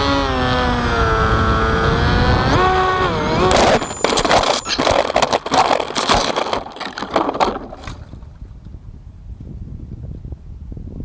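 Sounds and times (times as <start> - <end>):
electric motor whine: 0.0 - 7.2
crashing through dry brush: 3.0 - 8.4
branches snapping and crunching: 3.4 - 8.3.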